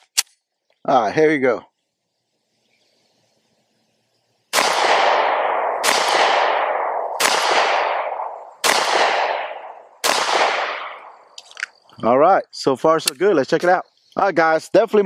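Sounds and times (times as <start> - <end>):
pistol shots echoing: 4.5 - 11.4.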